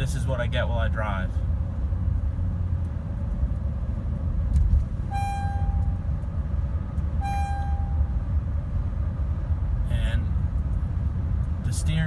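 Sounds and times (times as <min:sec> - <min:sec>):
road noise while driving: 0:00.0 - 0:12.0
car warning chime: 0:05.1 - 0:06.2, 0:07.2 - 0:08.2.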